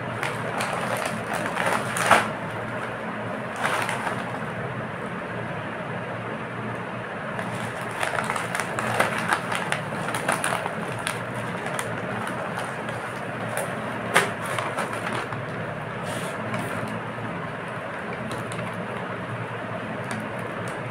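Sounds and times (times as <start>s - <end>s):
plastic packet crinkling: 0.0s - 4.6s, 7.3s - 15.6s, 18.1s - 19.1s
steady background noise: 0.0s - 20.9s
packet seal cracking open: 0.2s - 2.4s, 7.4s - 15.4s.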